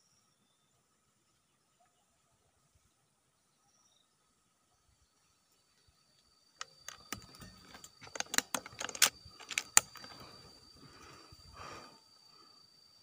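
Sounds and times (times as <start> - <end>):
air rifle handling clicks: 6.6 - 10.3.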